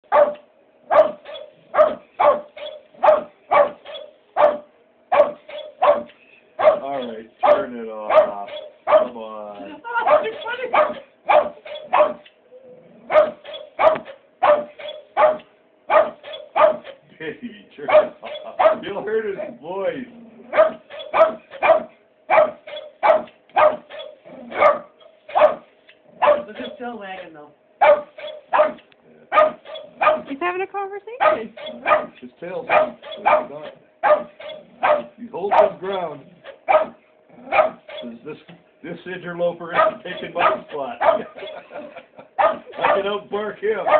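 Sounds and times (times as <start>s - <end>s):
dog barking sharply: 0.0s - 9.2s, 10.0s - 12.3s, 13.1s - 17.0s, 17.9s - 18.9s, 20.5s - 26.8s, 27.8s - 30.3s, 31.2s - 35.8s, 36.5s - 38.0s, 39.8s - 41.6s, 42.4s - 43.1s.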